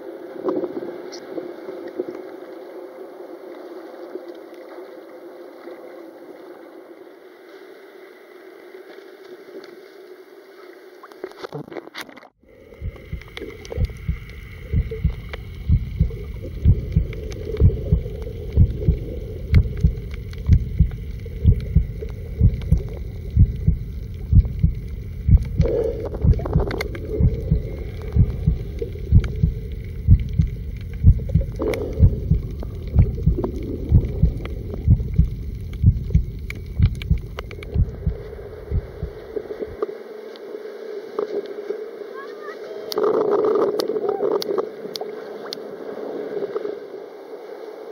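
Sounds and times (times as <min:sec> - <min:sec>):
faint hum: 0:00.0 - 0:11.6, 0:12.4 - 0:47.9
water sloshing: 0:11.1 - 0:39.9
slow low thumping pulse: 0:12.5 - 0:39.9.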